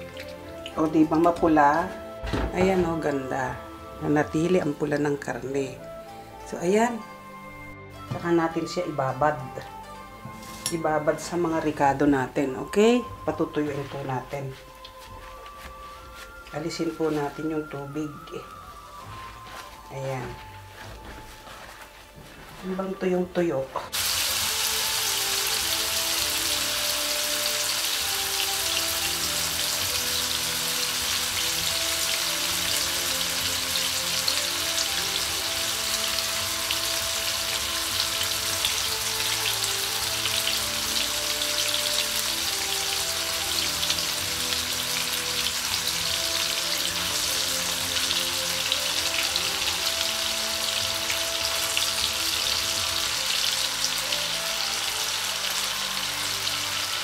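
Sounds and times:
meat sizzling in oil: 0.0 - 2.2, 23.9 - 57.0
soft background music: 0.0 - 57.0.

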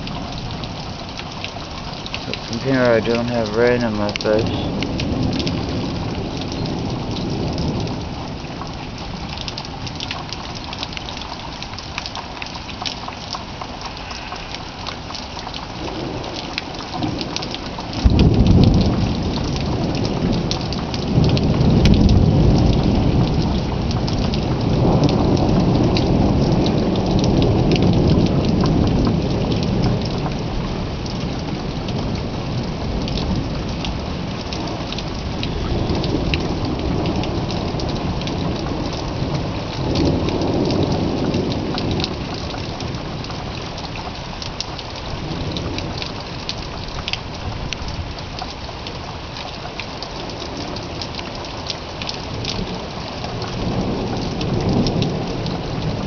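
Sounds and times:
steady rain falling: 0.0 - 56.0
thunder cracking and rumbling: 2.2 - 10.4, 14.0 - 43.3, 52.2 - 56.0.

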